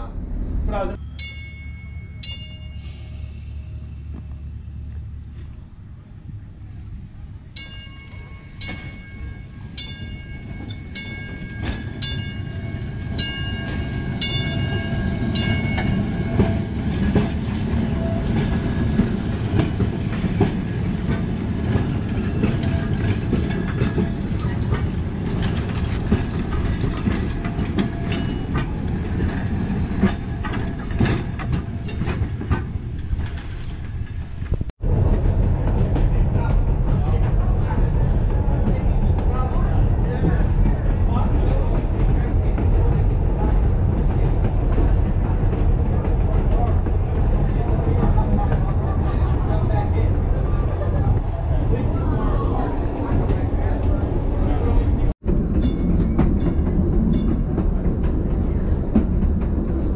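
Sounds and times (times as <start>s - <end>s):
rumble inside trolley cab: 0.0s - 59.9s
trolley wheels rumbling on rails: 0.0s - 59.9s
bell striking: 1.0s - 4.8s, 7.6s - 16.5s.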